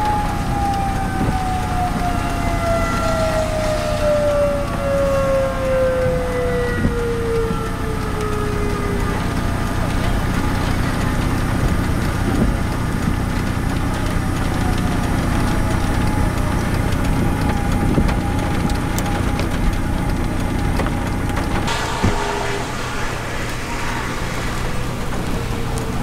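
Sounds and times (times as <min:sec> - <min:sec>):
tornado warning siren: 0:00.0 - 0:26.0
wind buffeting microphone: 0:21.6 - 0:26.0.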